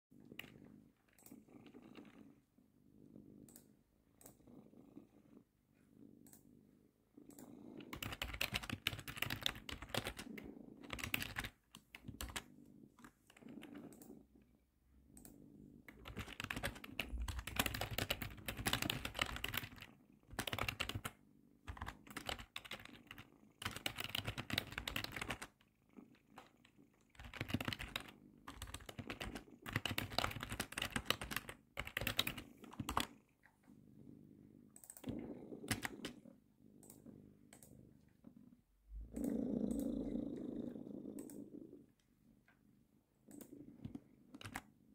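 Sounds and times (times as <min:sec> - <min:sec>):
cat purring: 0:00.1 - 0:44.9
computer keyboard typing: 0:07.3 - 0:14.1, 0:15.9 - 0:25.6, 0:26.3 - 0:33.2, 0:34.8 - 0:36.2, 0:43.3 - 0:44.7.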